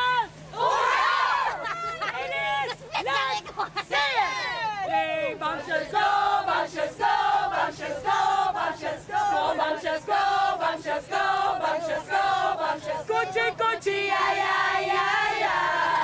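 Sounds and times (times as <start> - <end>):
women chanting in unison: 5.4 - 16.0.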